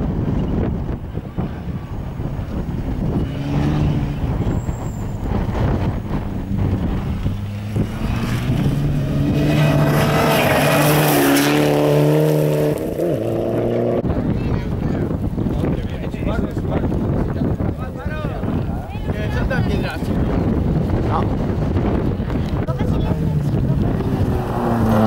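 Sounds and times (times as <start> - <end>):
rally car engine revving: 2.0 - 14.1, 20.4 - 25.0.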